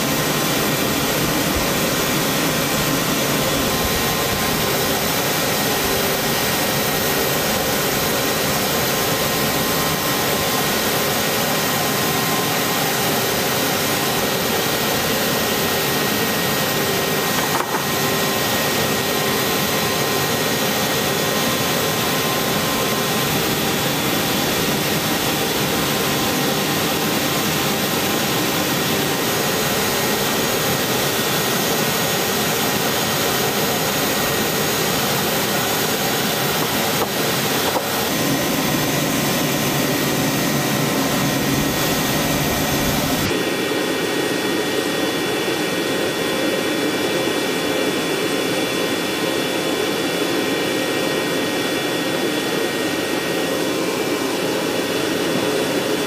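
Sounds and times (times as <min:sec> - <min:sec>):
helicopter turbine engine roar: 0:00.0 - 0:56.0
faint whine: 0:00.1 - 0:43.8.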